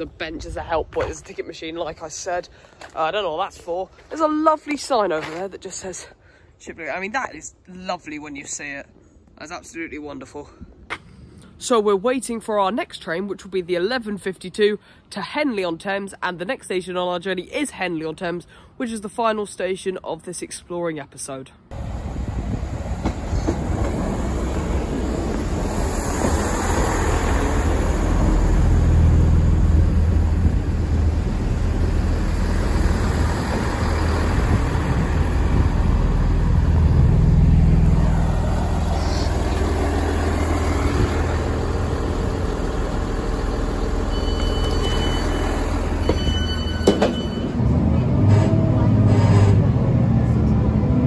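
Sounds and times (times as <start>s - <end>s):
diesel train engines droning: 21.7s - 51.0s
wheel and rail noise: 21.7s - 51.0s
short high door beeps: 44.0s - 47.6s.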